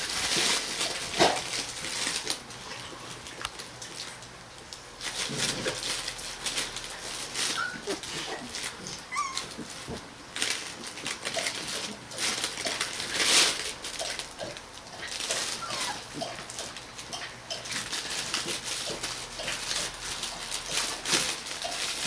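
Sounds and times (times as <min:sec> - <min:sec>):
shuffling and rustling: 0:00.0 - 0:22.0
puppies squeaking and whimpering: 0:07.4 - 0:10.0, 0:15.3 - 0:16.4.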